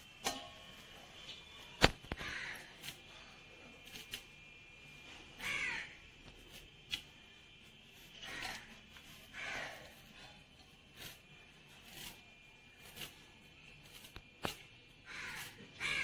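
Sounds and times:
crow cawing: 0:02.1 - 0:03.2, 0:05.4 - 0:06.0, 0:08.2 - 0:10.3, 0:15.0 - 0:16.0.

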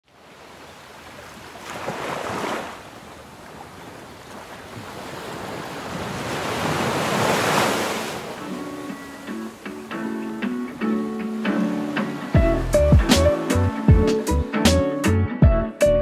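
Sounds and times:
small waves breaking on beach: 0:00.0 - 0:12.4.

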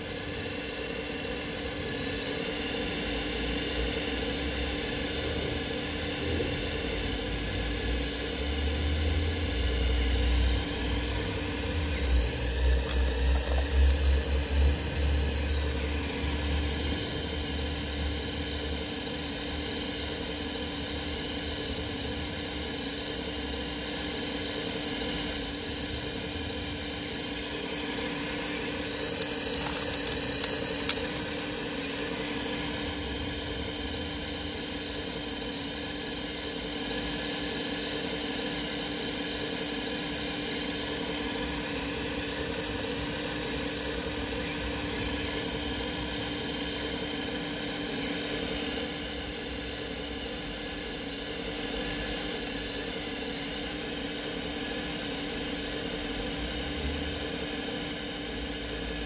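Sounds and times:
higher-pitched motor whine: 0:00.0 - 0:59.0
small electric motors whining: 0:00.0 - 0:59.0.

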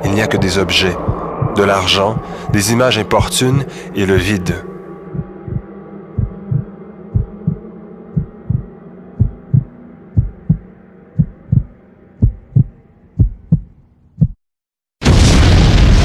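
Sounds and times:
heartbeat thumps: 0:00.4 - 0:02.8, 0:04.1 - 0:04.5, 0:05.1 - 0:07.6, 0:08.2 - 0:14.4.

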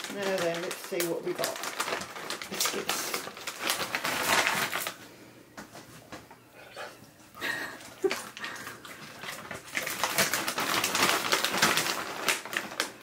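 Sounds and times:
crackling clicking noises: 0:00.0 - 0:05.0, 0:08.0 - 0:13.0.

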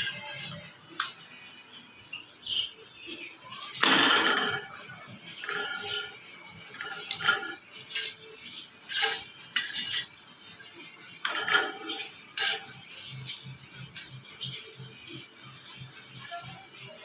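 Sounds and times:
metallic clinks on iron griddle: 0:03.8 - 0:15.7.

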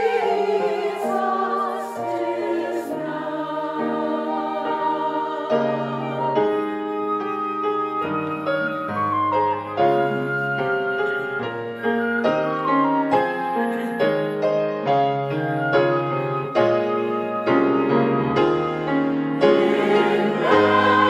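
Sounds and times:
piano notes: 0:00.0 - 0:21.0
flute melody: 0:03.8 - 0:21.0.

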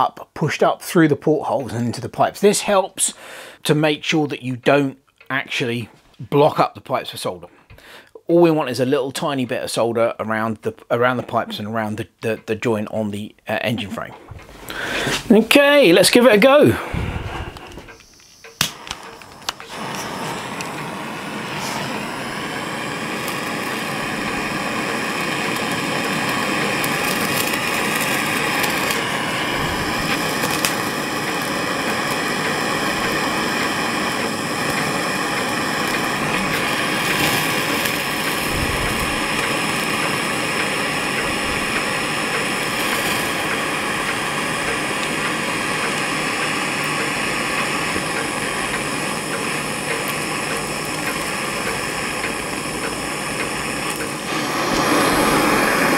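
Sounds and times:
blowtorch hissing: 0:14.3 - 0:55.9.

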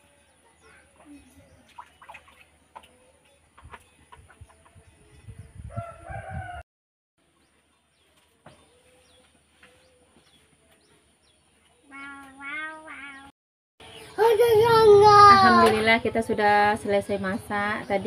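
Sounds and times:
rooster crowing: 0:05.7 - 0:06.6
faint bird chirps: 0:08.6 - 0:14.4.

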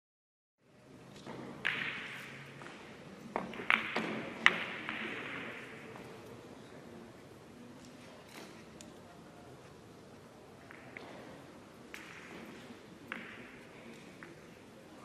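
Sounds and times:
billiard balls clicking: 0:01.2 - 0:02.7, 0:03.3 - 0:05.8.

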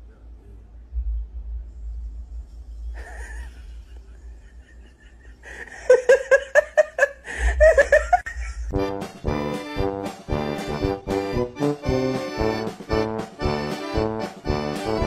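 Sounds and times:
person laughing: 0:03.0 - 0:08.8
accordion music: 0:08.7 - 0:15.0.

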